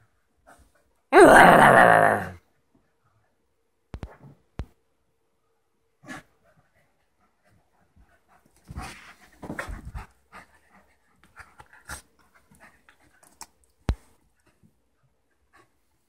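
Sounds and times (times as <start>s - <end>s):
dogs panting: 6.0s - 13.5s.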